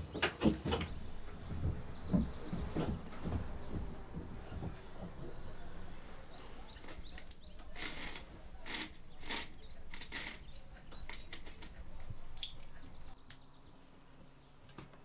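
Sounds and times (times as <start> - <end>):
scraping and rustling handling noises: 0.0 - 13.2
small clicks: 6.8 - 13.4.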